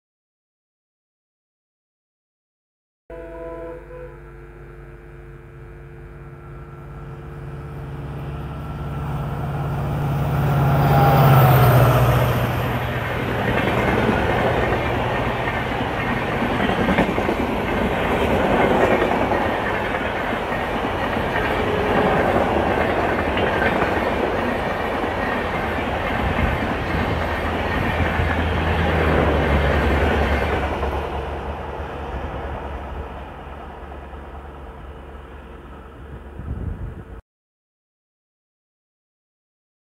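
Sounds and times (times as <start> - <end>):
diesel locomotive engine drone: 3.1 - 37.2
train wheels clickety-clack: 11.2 - 31.2.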